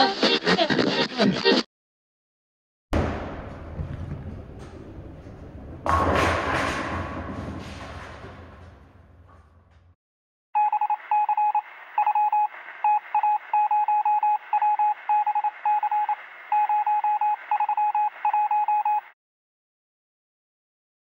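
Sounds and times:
rapid electronic beeps: 10.6 - 19.1.

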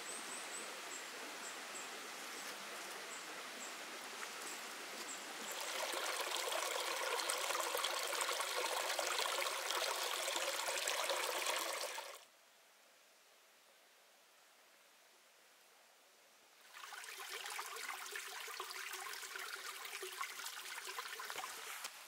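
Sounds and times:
stream running over rocks: 0.5 - 12.2, 16.6 - 22.0.

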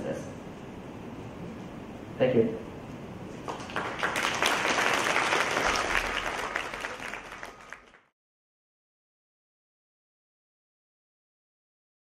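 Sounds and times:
audience applauding: 3.4 - 8.1.

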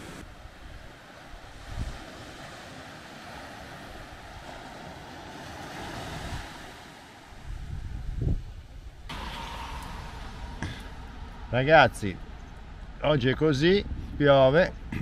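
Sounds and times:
surf washing onto beach: 0.0 - 8.4, 9.0 - 12.4
wind buffeting microphone: 0.0 - 15.0.

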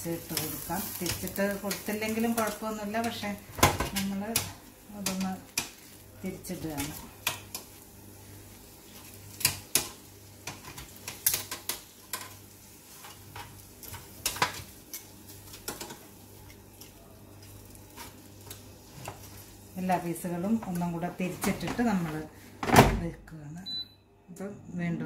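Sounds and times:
tongs clicking on metal basket: 3.9 - 5.8, 13.4 - 18.6.

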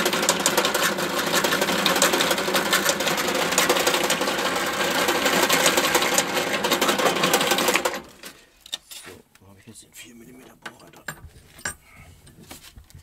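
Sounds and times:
drill press motor hum: 0.0 - 8.0
drill bit rattling through material: 0.0 - 8.2.

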